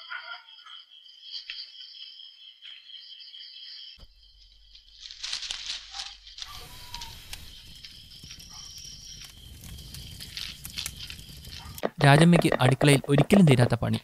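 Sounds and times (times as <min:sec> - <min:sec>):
insects chirring: 0:00.0 - 0:14.0
crackling and rustling: 0:04.4 - 0:13.6.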